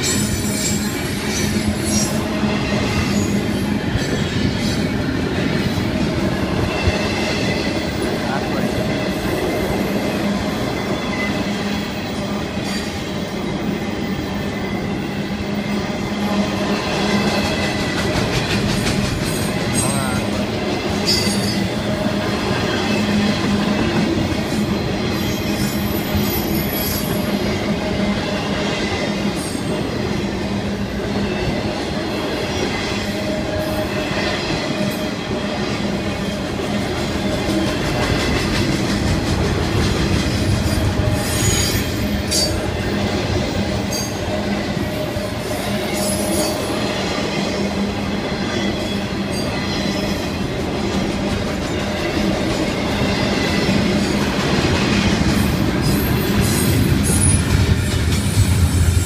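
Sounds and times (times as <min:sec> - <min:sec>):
freight train wheels rumbling on rail: 0:00.0 - 0:59.0
wheels clacking over rail joints: 0:16.7 - 0:27.3
high wheel squeals: 0:40.6 - 0:42.7.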